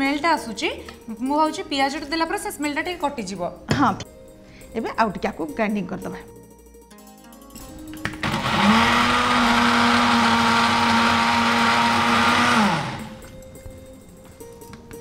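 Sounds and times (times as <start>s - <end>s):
electric mixer grinder motor: 8.1s - 13.3s.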